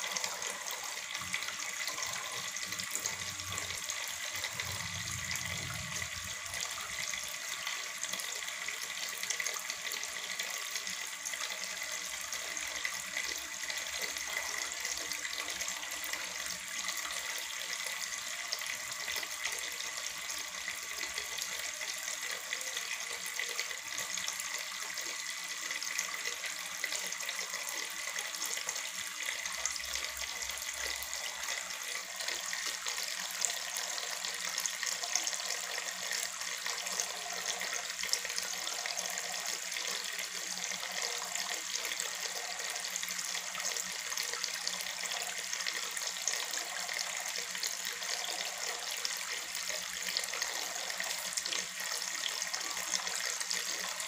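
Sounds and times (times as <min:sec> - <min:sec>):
water fountain trickling: 0:00.0 - 0:54.0.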